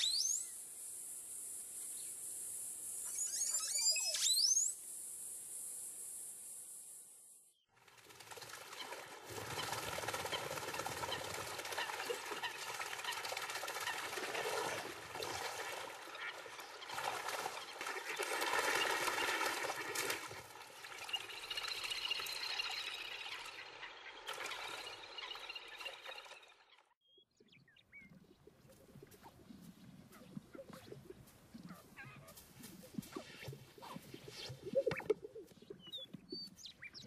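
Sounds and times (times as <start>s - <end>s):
water splashing and rushing: 8.0s - 26.6s.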